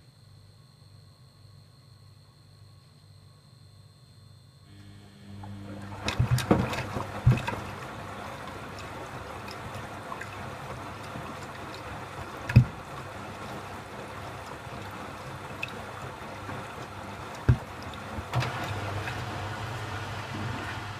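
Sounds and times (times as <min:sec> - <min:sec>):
washing machine motor hum: 0:04.7 - 0:20.9
water sloshing in washing machine: 0:05.4 - 0:20.9
clothes thumping in drum: 0:06.0 - 0:07.7.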